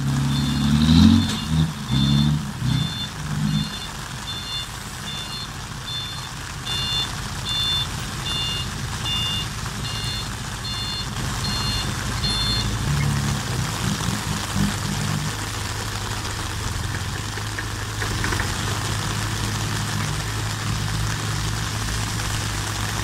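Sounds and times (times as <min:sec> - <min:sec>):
truck engine running: 0:00.0 - 0:23.0
reversing alarm beeping: 0:00.2 - 0:12.8.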